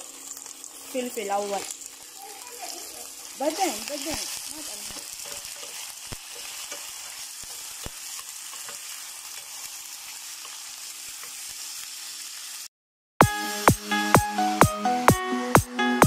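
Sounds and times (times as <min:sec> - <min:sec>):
chicken sizzling in oil: 0:00.0 - 0:13.9.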